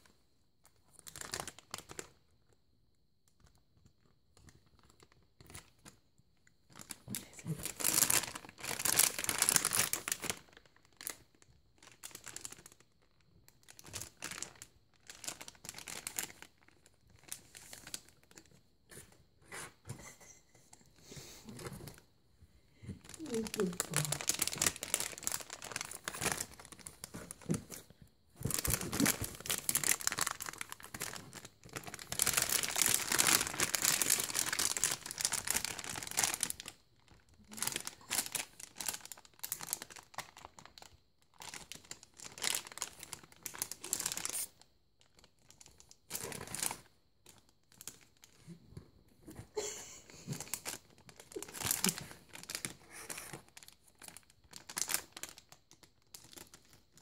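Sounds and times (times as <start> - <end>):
plastic snack bag crinkling: 0.8 - 2.6, 6.7 - 19.2, 22.9 - 48.4, 50.2 - 57.0.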